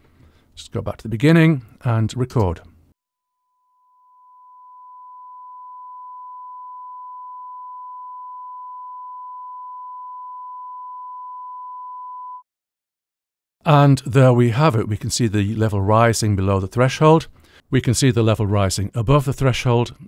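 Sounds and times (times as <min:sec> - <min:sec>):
sine wave test tone: 0:03.1 - 0:12.4.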